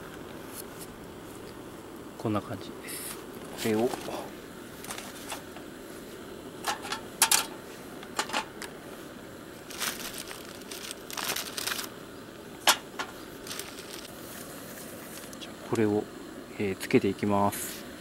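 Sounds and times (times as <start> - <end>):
plastic wrapping rustling: 4.8 - 5.5, 9.6 - 12.0, 12.6 - 14.1.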